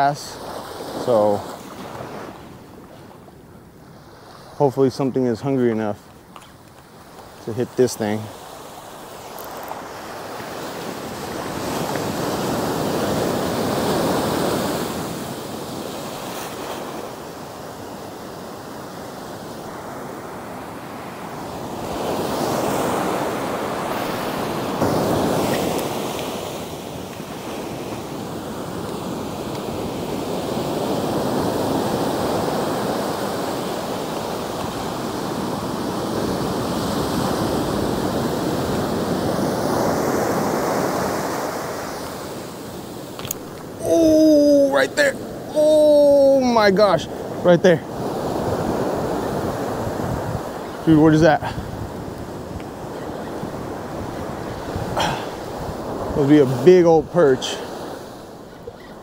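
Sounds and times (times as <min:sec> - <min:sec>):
surf waves breaking on sand: 0:00.0 - 0:59.0
wind noise on microphone: 0:48.3 - 0:56.2.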